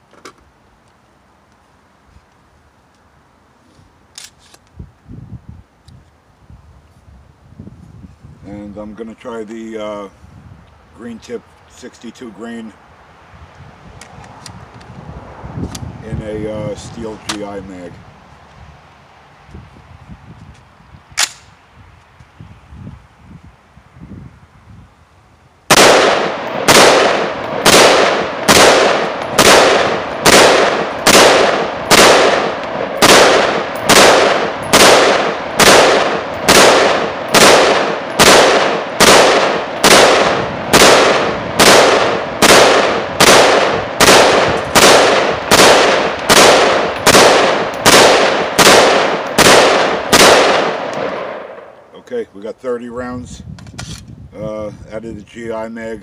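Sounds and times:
pistol gunshots: 25.7s - 51.7s.

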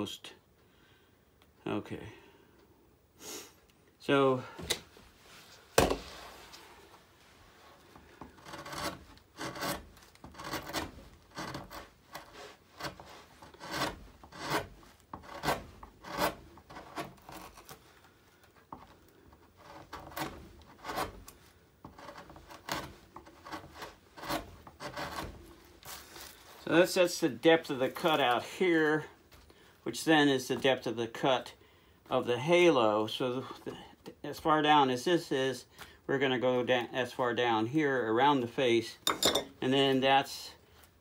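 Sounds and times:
knife shaving wood: 7.8s - 26.7s.

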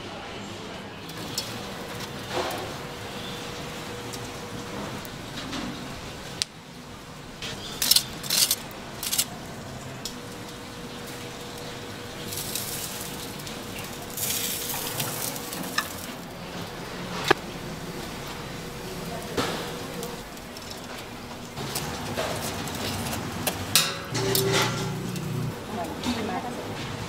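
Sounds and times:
metal utensils clattering: 7.7s - 9.3s, 21.6s - 26.4s
food sizzling: 8.1s - 25.9s.

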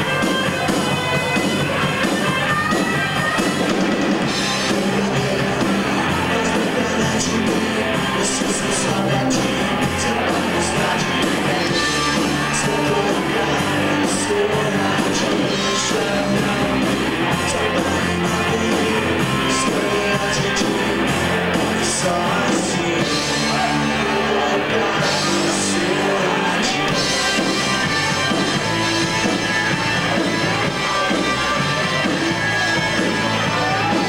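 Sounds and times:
live rock band playing: 0.0s - 34.0s
person singing: 4.2s - 34.0s.

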